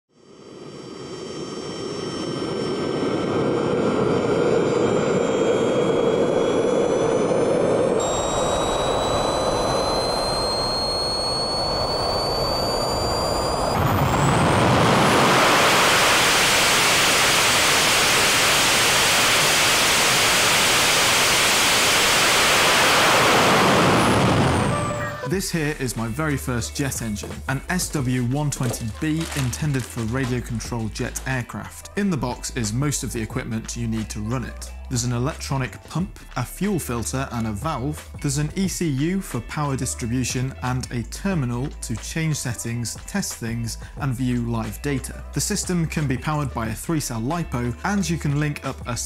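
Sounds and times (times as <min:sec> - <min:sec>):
turbojet engine whine: 0:00.1 - 0:26.1
rush of air: 0:00.2 - 0:25.0.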